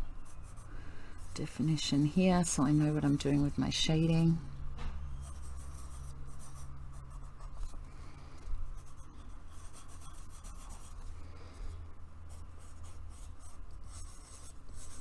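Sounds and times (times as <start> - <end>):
steady low hum: 0.0 - 15.0
pencil scratching on paper: 5.1 - 7.8, 8.8 - 11.1, 12.3 - 15.0.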